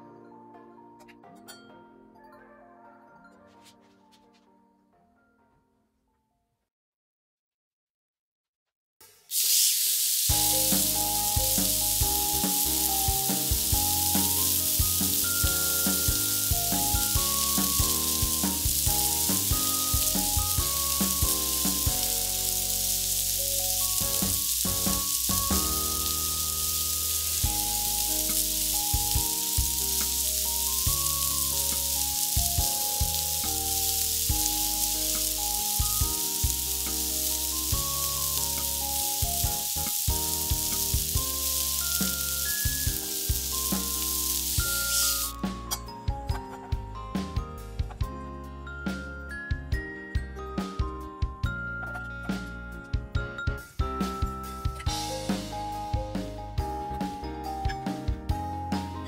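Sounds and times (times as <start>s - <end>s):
background music: 0.0s - 6.3s, 10.2s - 59.0s
food sizzling in hot oil: 9.1s - 45.5s.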